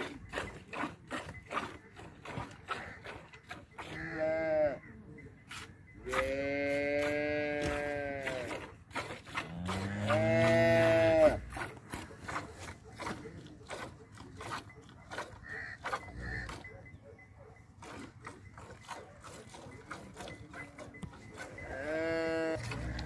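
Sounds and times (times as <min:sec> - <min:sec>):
cattle mooing: 0:03.7 - 0:04.9, 0:06.0 - 0:08.8, 0:09.4 - 0:11.6, 0:15.4 - 0:16.8, 0:19.5 - 0:23.0.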